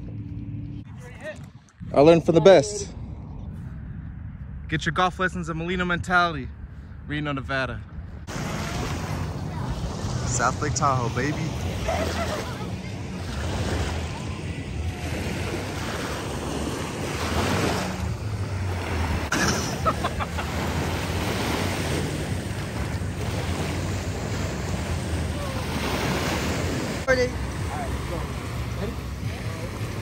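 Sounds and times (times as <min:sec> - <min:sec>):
wind buffeting microphone: 0:00.0 - 0:30.0
waves lapping: 0:08.2 - 0:30.0.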